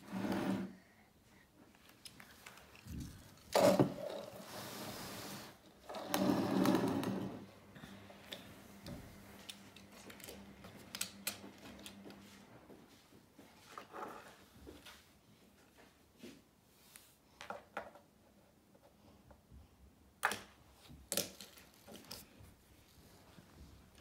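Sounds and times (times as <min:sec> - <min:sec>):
light clicks of toy cars: 0:01.7 - 0:03.5.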